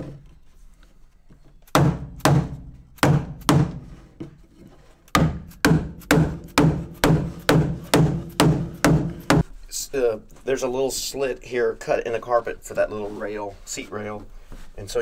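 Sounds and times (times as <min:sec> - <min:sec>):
mallet striking wooden block: 0:01.8 - 0:03.8, 0:05.2 - 0:09.4.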